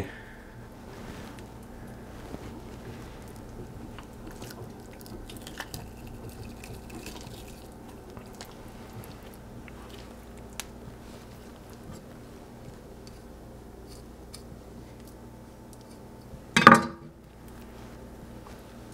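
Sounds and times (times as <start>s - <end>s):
low hum: 0.0s - 18.9s
fish skin tearing with wet crackles: 3.3s - 16.1s.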